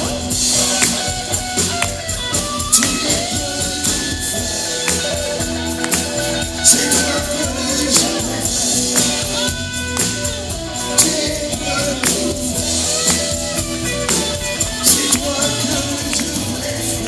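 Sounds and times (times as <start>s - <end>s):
held keyboard chords: 0.0s - 17.0s
live pop band playing: 0.0s - 17.0s.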